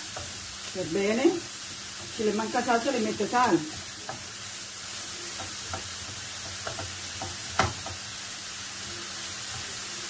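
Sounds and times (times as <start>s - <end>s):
food sizzling in frying pan: 0.0s - 10.0s
spoon knocking against pan: 5.3s - 8.1s.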